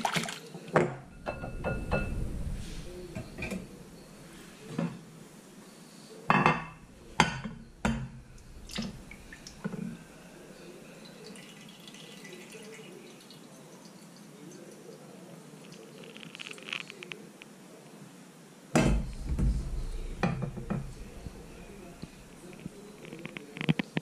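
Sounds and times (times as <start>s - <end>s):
liquid pouring into dish: 7.0s - 15.0s.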